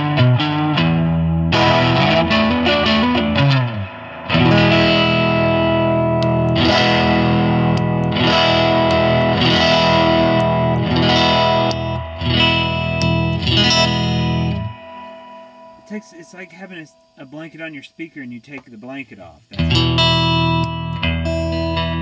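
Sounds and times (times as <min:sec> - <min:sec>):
distorted electric guitar chords: 0:00.0 - 0:22.0
guitar pedal switch click: 0:06.1 - 0:15.2.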